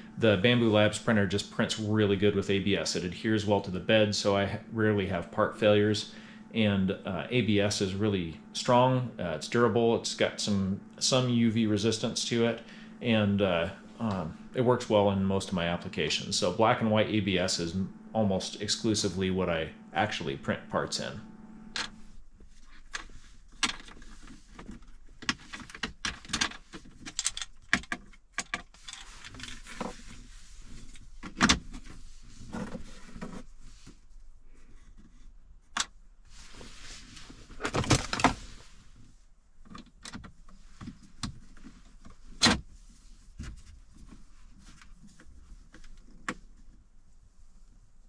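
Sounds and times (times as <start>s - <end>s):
hard plastic clicking and scraping: 21.7s - 30.1s.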